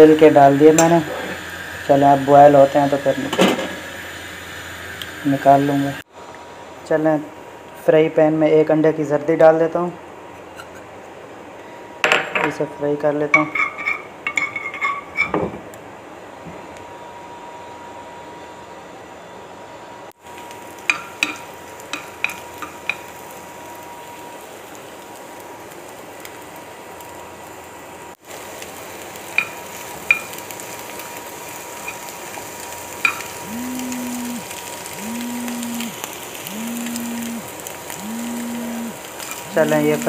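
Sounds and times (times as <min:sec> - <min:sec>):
egg sizzling in frying pan: 0:00.0 - 0:05.4, 0:20.2 - 0:40.0
spatula tapping a pan: 0:20.9 - 0:23.0
low humming tone: 0:33.0 - 0:40.0.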